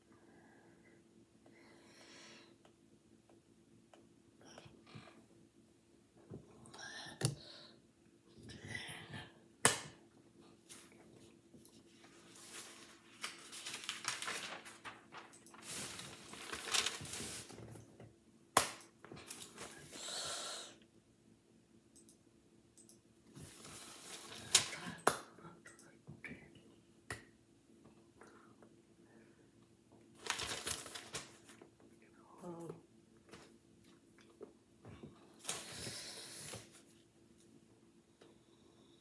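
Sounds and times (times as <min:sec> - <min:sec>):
faint steady hum: 0:00.0 - 0:39.0
sharp slaps: 0:18.6 - 0:18.9.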